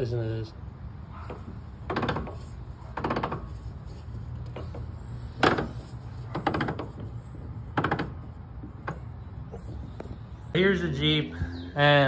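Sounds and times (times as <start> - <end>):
metallic clicking and clunking: 1.2 - 10.2.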